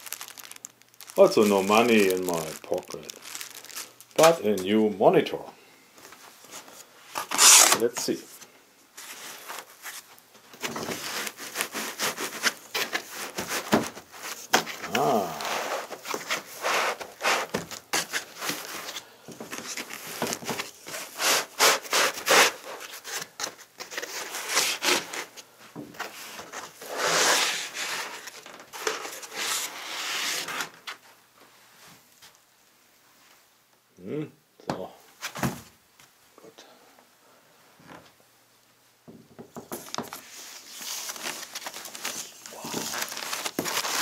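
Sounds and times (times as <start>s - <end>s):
foam squeaking against cardboard: 7.2s - 7.8s
cardboard scraping and knocking: 10.6s - 14.9s.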